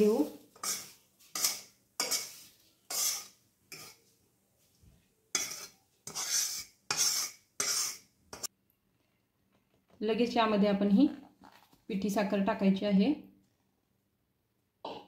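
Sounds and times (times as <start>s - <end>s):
metal spoon scraping a pan: 0.0s - 4.1s, 5.3s - 8.5s.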